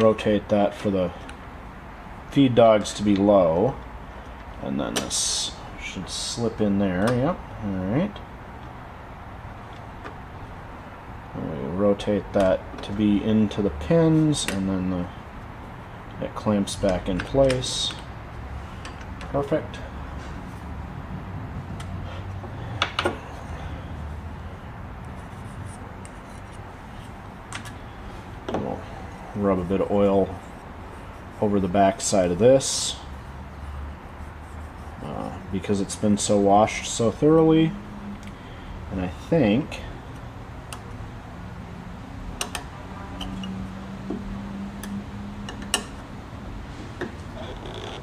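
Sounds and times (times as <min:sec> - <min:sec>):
steady low hum: 0:00.0 - 0:48.0
light metallic clicks and taps: 0:42.4 - 0:44.2, 0:44.8 - 0:46.0.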